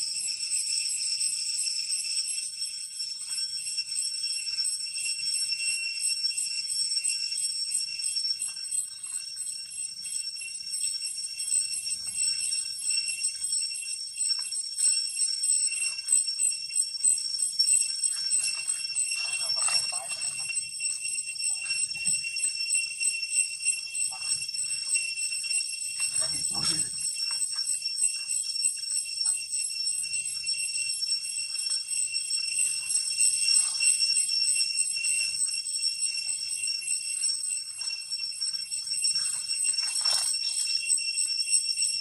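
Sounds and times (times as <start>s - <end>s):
insects droning: 0.0s - 31.8s.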